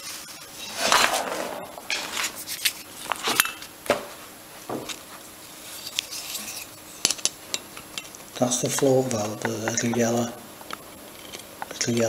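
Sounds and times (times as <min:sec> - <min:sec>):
rustle of handling: 0:00.6 - 0:09.4.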